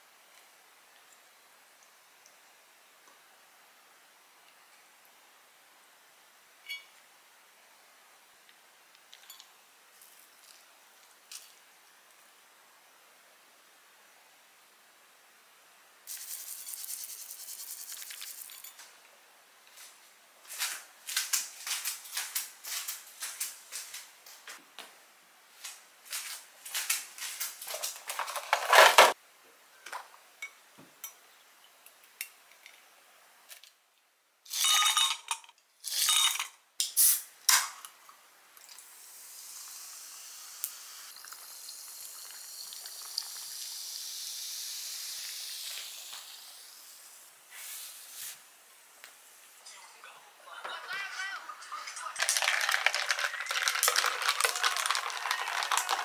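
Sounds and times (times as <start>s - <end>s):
steady hiss: 0.0s - 27.6s, 36.8s - 50.4s
utensils clinking against dishes: 34.5s - 36.5s.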